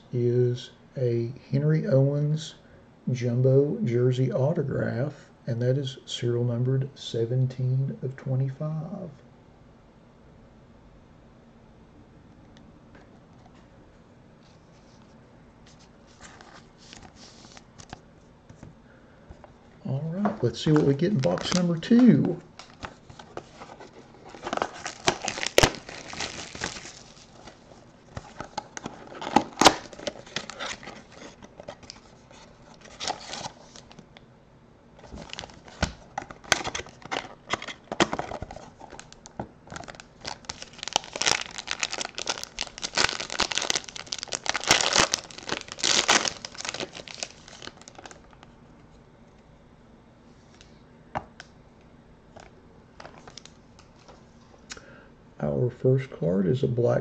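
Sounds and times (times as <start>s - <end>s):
packaging crinkling and tearing: 20.4s - 34.0s, 35.0s - 48.5s, 53.0s - 54.0s.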